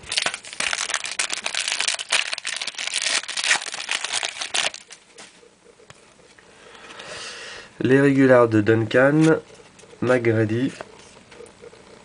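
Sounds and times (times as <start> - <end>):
plastic wrapper crinkling: 0.0 - 5.0.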